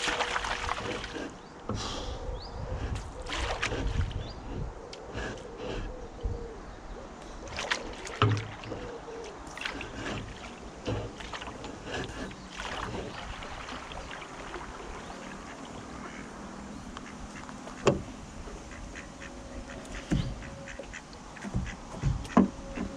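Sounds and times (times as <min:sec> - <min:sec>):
paddle splashing in water: 0:00.0 - 0:01.5, 0:03.2 - 0:04.3, 0:07.3 - 0:18.1.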